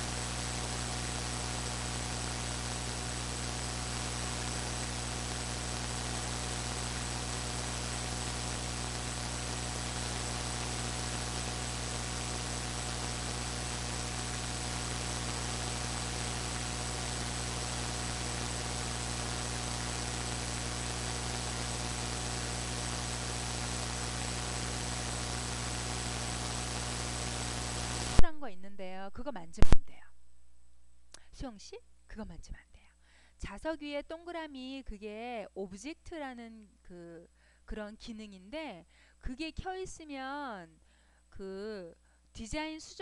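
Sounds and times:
electrical hiss: 0.0 - 28.2
thin high whine: 0.0 - 28.3
low mains hum: 0.0 - 35.4.

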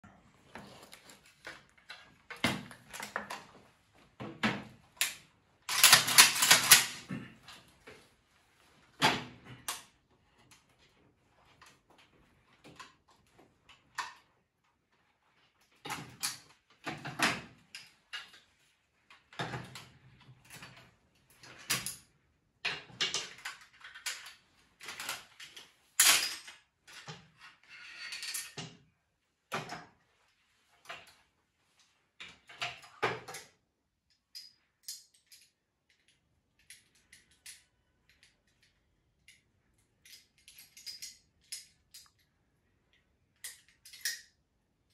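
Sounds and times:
metallic clicks and clacks: 5.0 - 7.1.

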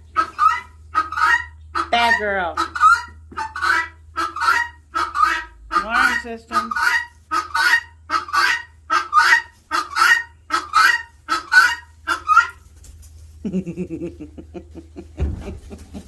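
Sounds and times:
guineafowl alarm call: 0.1 - 12.6.

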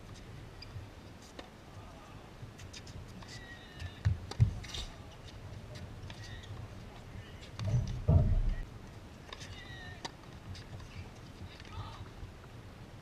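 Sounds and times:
low uneven rumble: 6.6 - 9.0
sharp knocks: 7.6 - 8.6.

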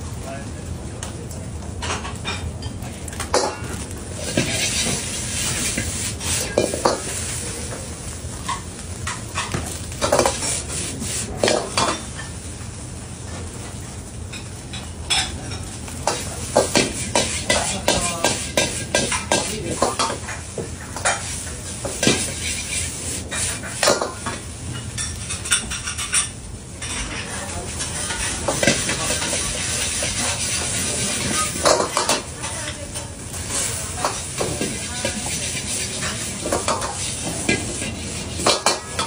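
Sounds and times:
rice sizzling: 0.0 - 39.0
metal ladle scraping a wok: 21.0 - 23.9, 26.8 - 32.7, 33.5 - 39.0.

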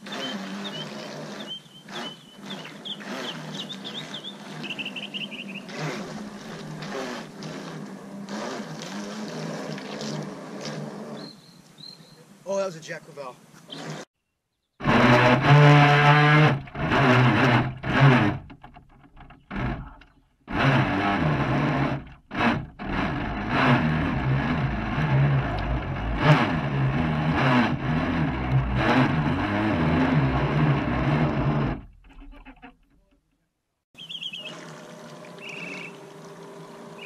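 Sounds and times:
model boat motor and propeller: 0.0 - 11.8, 13.6 - 14.1, 14.8 - 37.0
water splashing over hull: 34.2 - 37.0.

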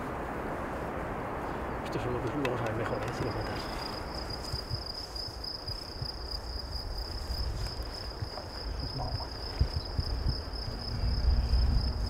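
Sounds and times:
insect trilling: 2.9 - 12.0.

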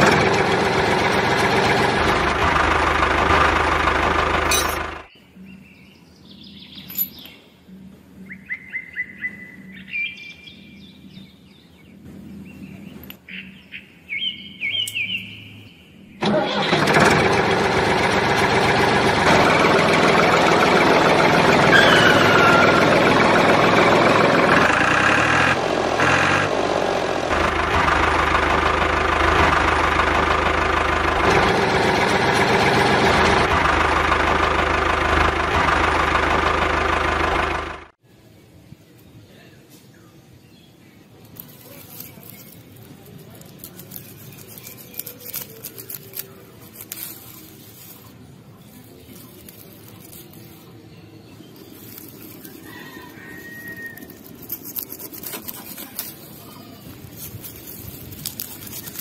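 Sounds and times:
model tractor motor running: 0.0 - 5.1, 16.2 - 38.0, 41.3 - 48.2, 48.8 - 50.8, 51.5 - 59.0
bird chirps: 5.1 - 7.6, 8.2 - 16.2.

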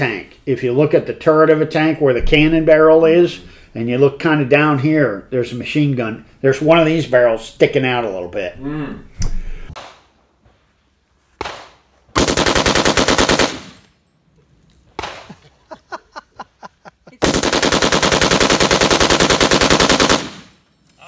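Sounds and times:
machine gun firing: 12.2 - 13.8, 17.2 - 20.6.

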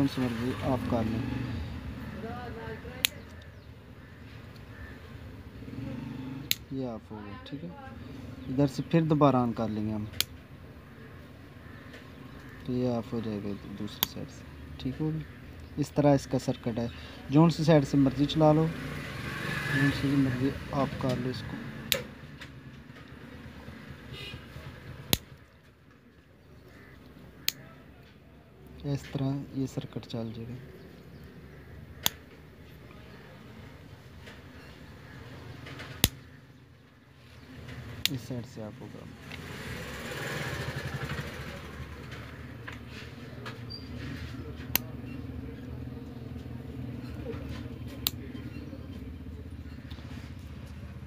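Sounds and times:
light switch clicks: 25.1 - 25.3, 36.0 - 36.2.

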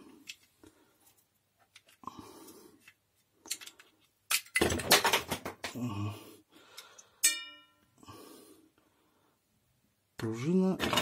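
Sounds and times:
motor parts clattering on workbench: 3.5 - 5.8, 10.8 - 11.0
metal part struck ringing: 7.2 - 7.8.

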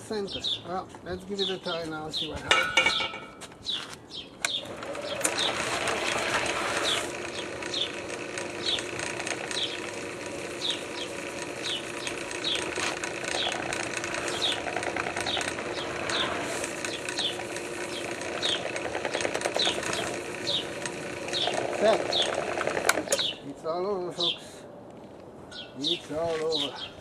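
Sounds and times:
metal clanks: 2.5 - 3.4
drill press motor running: 4.5 - 23.3.

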